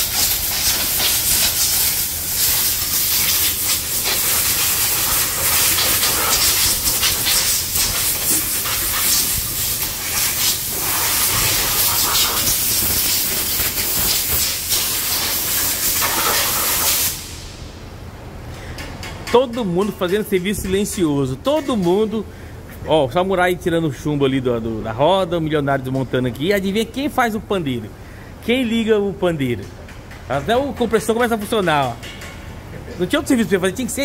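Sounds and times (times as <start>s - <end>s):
compressed air blow gun hissing: 0.0s - 17.6s.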